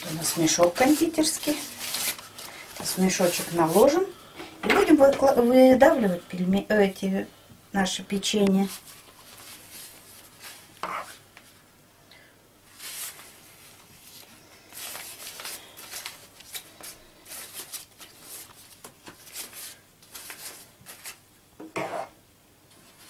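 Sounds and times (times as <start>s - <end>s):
cloth piping bag rustling: 0.0s - 4.2s, 8.3s - 11.6s, 12.7s - 21.3s
spoon scraping and knocking pot: 21.6s - 22.2s.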